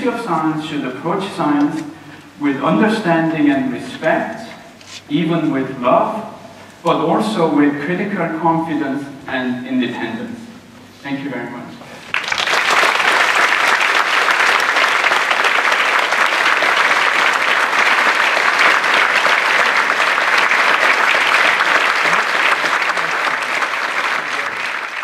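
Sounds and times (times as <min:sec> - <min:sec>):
audience applause: 0:12.0 - 0:25.0.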